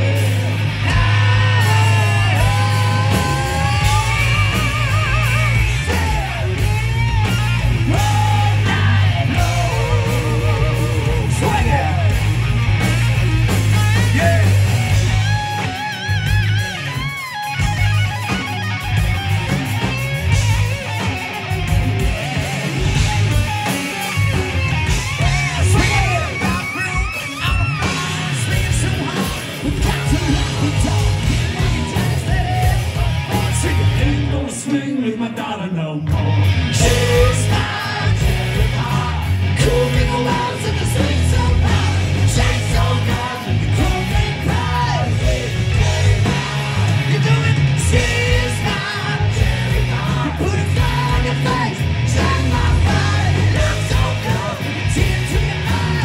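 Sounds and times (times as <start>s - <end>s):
singer half-yelling: 0.0s - 12.4s, 25.0s - 56.0s
live hard rock band: 0.0s - 56.0s
electric guitar solo: 14.0s - 28.4s.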